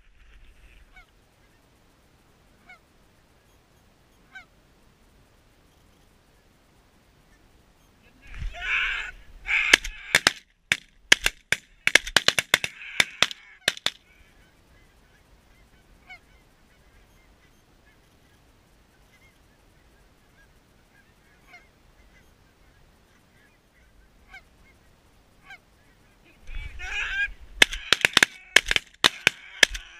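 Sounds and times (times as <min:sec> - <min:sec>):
distant geese calling: 0:08.0 - 0:29.9
goose call honks and clucks: 0:08.3 - 0:10.4, 0:12.3 - 0:14.6, 0:26.3 - 0:29.9.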